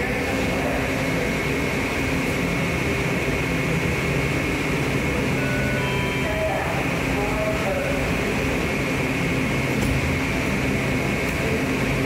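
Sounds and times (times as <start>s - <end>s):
train equipment humming: 0.0s - 12.0s
thin high whine: 4.4s - 9.2s.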